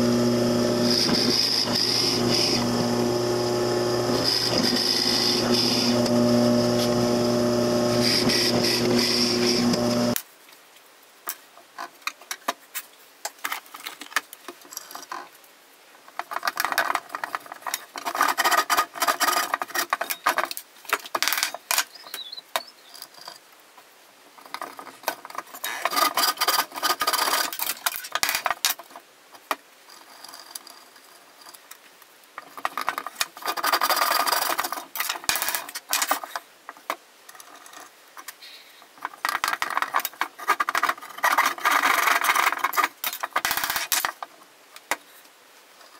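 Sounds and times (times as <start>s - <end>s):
wood rubbing on wood: 0.0s - 10.2s.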